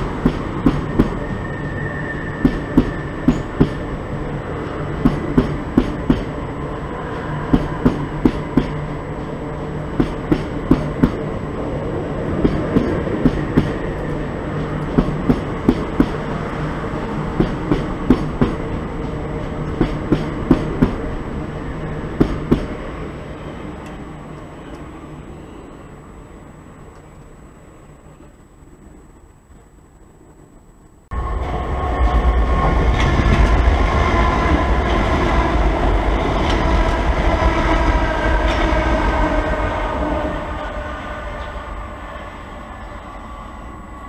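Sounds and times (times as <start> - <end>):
train wheels clicking over rail joints: 0.0 - 1.4, 2.3 - 4.0, 4.6 - 6.4, 7.1 - 9.3, 9.9 - 11.3, 12.3 - 16.3, 17.3 - 21.2, 22.1 - 22.8
train hum: 0.0 - 44.0.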